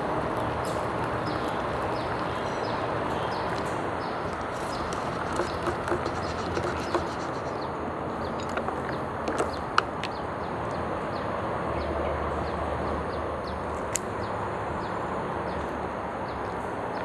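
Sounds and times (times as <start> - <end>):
ice clicking into cup: 4.3 - 7.5.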